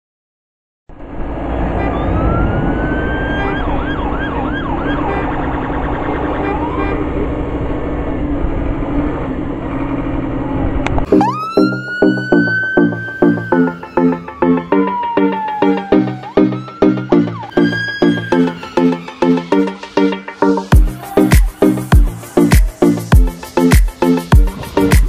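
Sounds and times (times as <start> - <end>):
siren wailing: 1.8 - 7.5, 10.3 - 23.4
music with steady beat: 11.1 - 25.0
rising held tone: 11.1 - 25.0.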